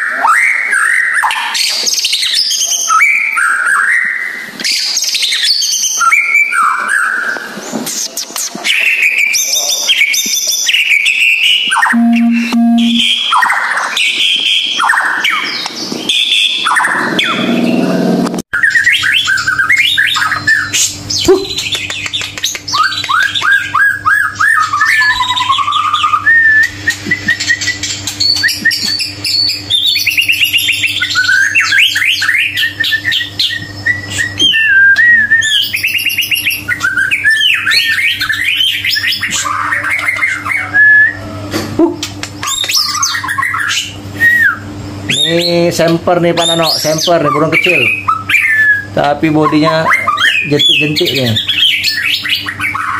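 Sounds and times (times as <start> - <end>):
steady low hum: 12.0 - 13.1
songbird whistles and trills: 18.6 - 41.3, 42.4 - 45.6, 46.4 - 49.0.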